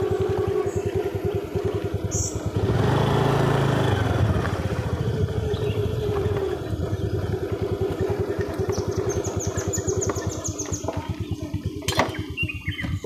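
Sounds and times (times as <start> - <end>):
motorcycle engine puttering: 0.0 - 13.0
bird trilling: 0.2 - 2.5, 5.2 - 13.0.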